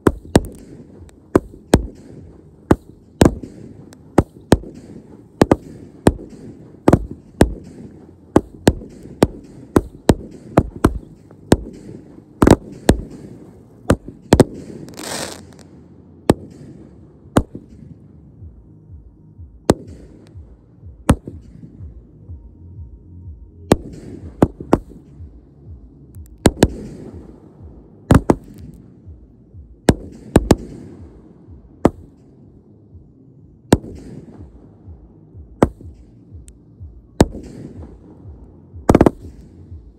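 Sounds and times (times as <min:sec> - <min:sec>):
fireworks banging: 0:00.0 - 0:18.0.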